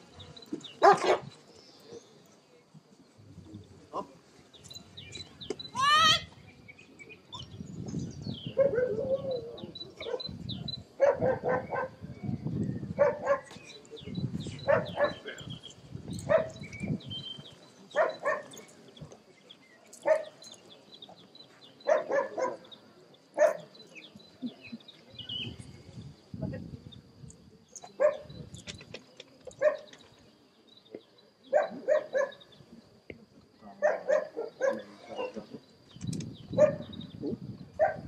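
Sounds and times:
dog barking: 0.8 - 1.3, 8.6 - 9.1, 10.0 - 10.4, 11.0 - 12.0, 13.0 - 13.5, 14.6 - 15.3, 16.3 - 16.6, 18.0 - 18.5, 20.0 - 20.3, 21.8 - 22.6, 23.4 - 23.7, 28.0 - 28.3, 29.6 - 29.9, 31.5 - 32.4, 33.8 - 35.4, 36.6 - 36.9, 37.8 - 38.0.

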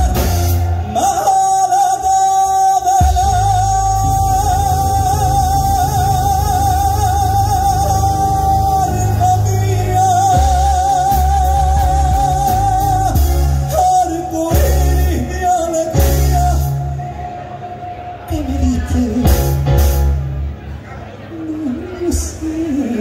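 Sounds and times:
man singing: 0.0 - 20.0, 21.3 - 23.0
live band playing: 0.0 - 23.0
band accented hits: 19.2 - 20.6.

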